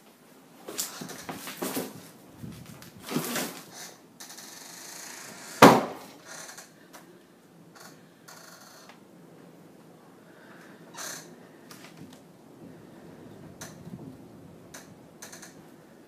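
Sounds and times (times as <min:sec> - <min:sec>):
loud wooden bang: 0:05.6 - 0:06.1.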